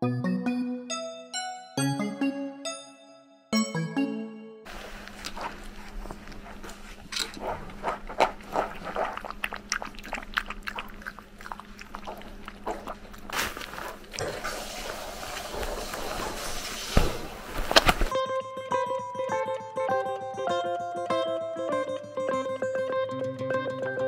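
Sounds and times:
scuffling against camera: 4.7 - 9.1, 13.2 - 14.1, 15.4 - 18.1
puppy lapping water: 4.7 - 17.2
acoustic guitar music: 18.1 - 24.0.

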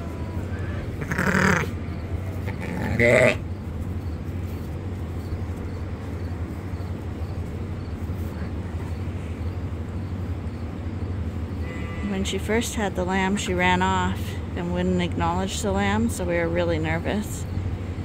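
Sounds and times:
steady low hum: 0.0 - 18.0
sheep bleating: 0.5 - 3.4.

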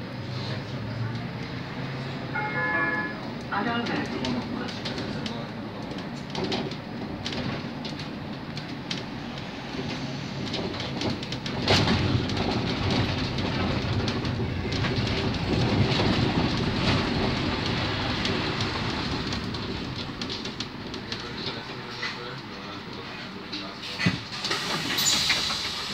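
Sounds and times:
trolleybus running noise: 0.0 - 25.9.

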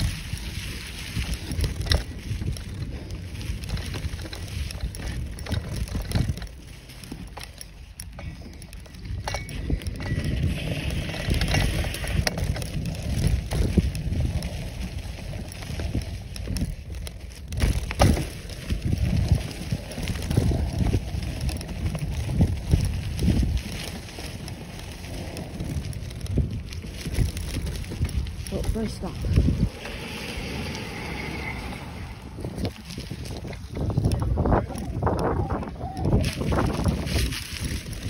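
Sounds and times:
bicycle tyres crunching leaves: 0.0 - 38.0
bike rattling: 0.0 - 38.0
wind buffeting microphone: 0.0 - 38.0
bike knocking over bumps: 1.4 - 28.4.

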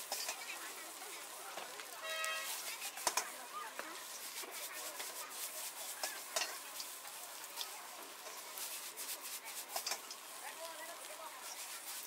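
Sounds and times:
utensil clacking on wok: 0.0 - 0.8, 2.6 - 10.3
noodles sizzling in a wok: 0.0 - 12.0.

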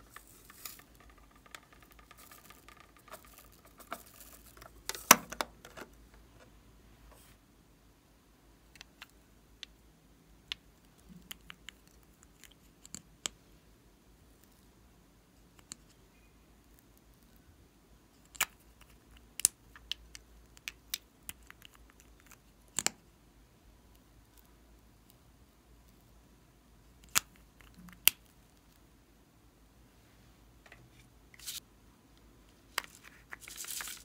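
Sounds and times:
plastic tubes clicking: 0.0 - 6.0.

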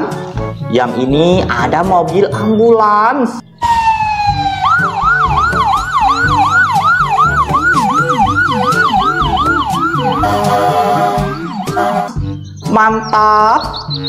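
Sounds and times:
toy siren electronic wail: 3.6 - 12.2.

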